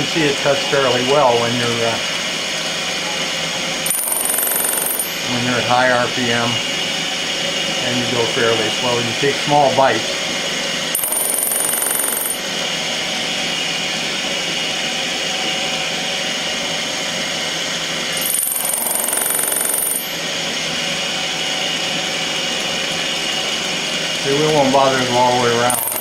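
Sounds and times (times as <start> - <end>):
milling machine spindle whine: 0.0 - 10.2, 10.8 - 13.5, 17.6 - 26.0
cutter skimming brass: 18.2 - 20.2, 25.6 - 26.0.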